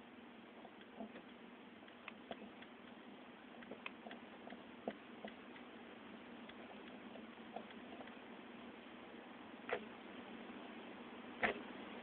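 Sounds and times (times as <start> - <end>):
low hum and hiss: 0.0 - 12.0
light clicks and ticks: 0.6 - 3.0.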